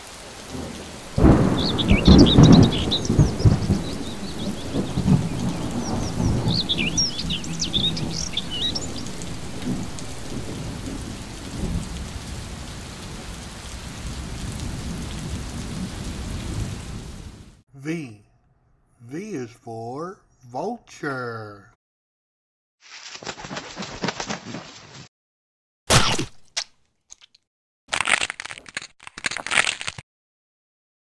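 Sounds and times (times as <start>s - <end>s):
steady rain: 0.0s - 17.6s
thunderclap rumbling: 0.5s - 17.6s
high chirping bird calls: 1.1s - 10.5s.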